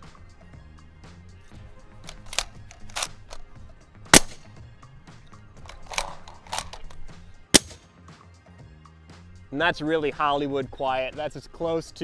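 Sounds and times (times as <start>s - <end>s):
background music: 0.0s - 12.0s
rifle clicks and clatters: 2.0s - 4.5s, 5.6s - 7.8s
suppressed rifle shot: 2.0s - 4.5s, 5.6s - 7.8s.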